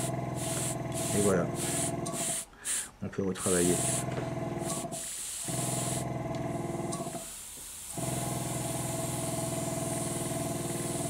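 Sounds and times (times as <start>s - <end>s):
small motor humming: 0.0s - 2.3s, 3.7s - 7.2s, 7.9s - 11.0s
airbrush air hiss: 0.0s - 6.0s, 7.0s - 11.0s.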